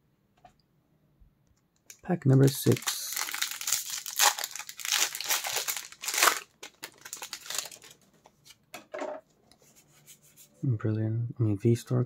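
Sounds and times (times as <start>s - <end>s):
foil wrapper crinkling: 1.9s - 8.0s.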